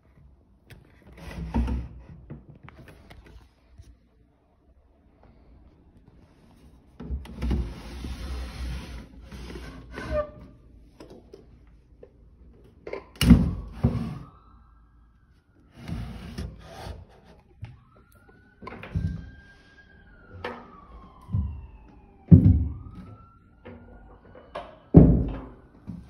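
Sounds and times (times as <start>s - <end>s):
faint siren rising and falling: 13.4s - 26.0s.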